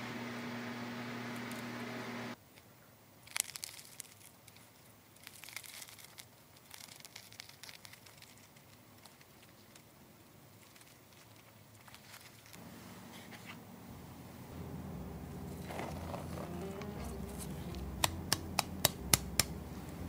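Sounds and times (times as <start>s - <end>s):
oven hum: 0.0s - 2.4s, 12.6s - 20.0s
bread crust crackling and tearing: 3.2s - 12.6s.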